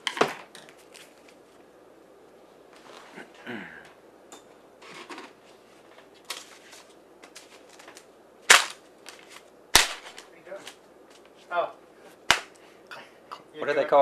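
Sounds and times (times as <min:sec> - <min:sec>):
sharp cracks: 0:07.3 - 0:10.8, 0:12.2 - 0:12.6.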